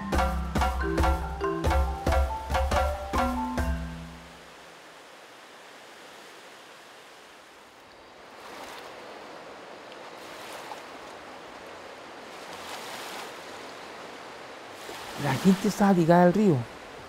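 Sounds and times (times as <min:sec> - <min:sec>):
rushing river water: 0:00.0 - 0:17.0
small waves splashing bank: 0:00.3 - 0:17.0.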